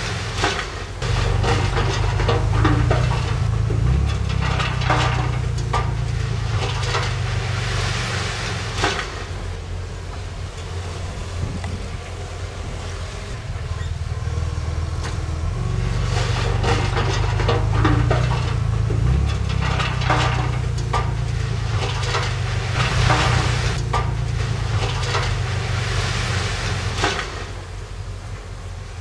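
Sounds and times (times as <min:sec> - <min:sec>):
scraping of dirt and rock: 0:00.0 - 0:27.5
diesel engine under load: 0:00.0 - 0:29.0
metallic clanks and knocks: 0:00.4 - 0:09.4, 0:13.6 - 0:25.8.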